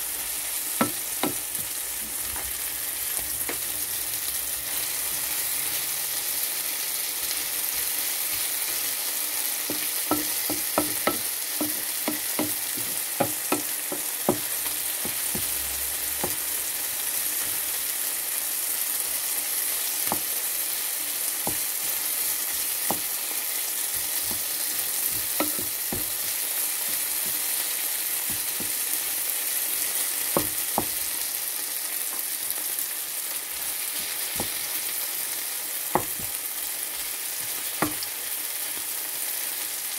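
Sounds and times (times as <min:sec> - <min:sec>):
vegetables sizzling in frying pan: 0:00.0 - 0:39.9
spatula tapping pan: 0:00.8 - 0:01.8, 0:03.1 - 0:03.7, 0:09.6 - 0:17.7, 0:19.2 - 0:20.3, 0:21.4 - 0:29.1, 0:30.2 - 0:31.2, 0:33.8 - 0:34.8, 0:35.9 - 0:38.1.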